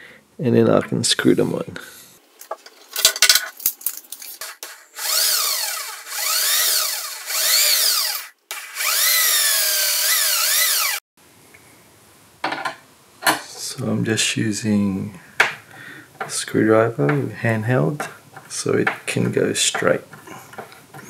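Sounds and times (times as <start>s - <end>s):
electric drill whine: 4.7s - 11.0s.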